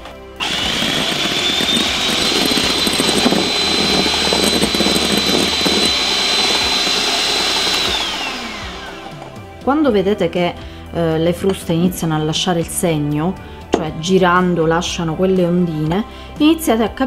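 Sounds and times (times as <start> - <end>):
electric hand mixer whining: 0.4 - 9.6.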